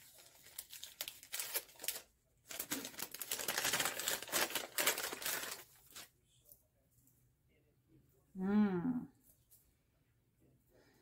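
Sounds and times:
wrapping crinkling and rustling: 0.0 - 6.1.

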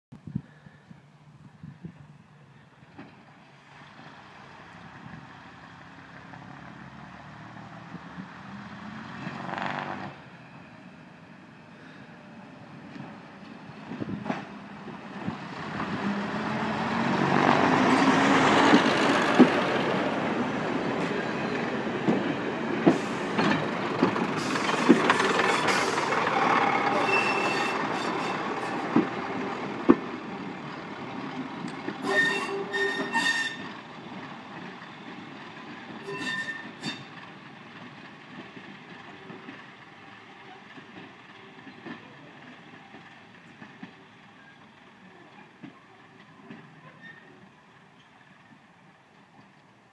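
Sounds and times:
diesel train passing: 1.0 - 49.9
wheels clicking over rail joints: 22.0 - 49.9
high-pitched wheel squeals: 26.9 - 28.8, 32.0 - 33.7, 36.0 - 37.1.

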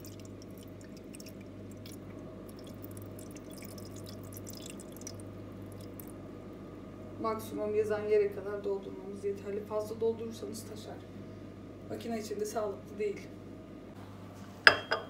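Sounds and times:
water dripping in plastic tank: 0.0 - 6.2
low hum: 0.0 - 7.7.

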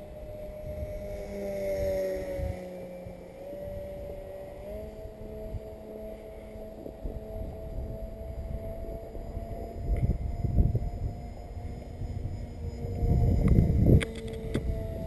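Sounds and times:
model plane motors droning: 0.0 - 15.0
wind buffeting microphone: 0.0 - 15.0.

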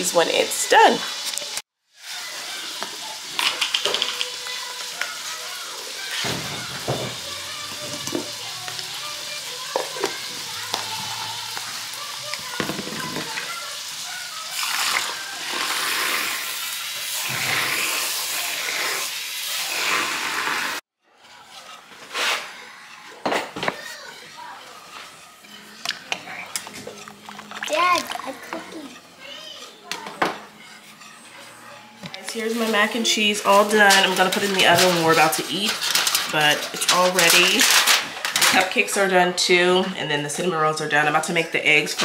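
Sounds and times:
food sizzling in a pan: 0.0 - 39.1
music and singing: 2.7 - 15.5.

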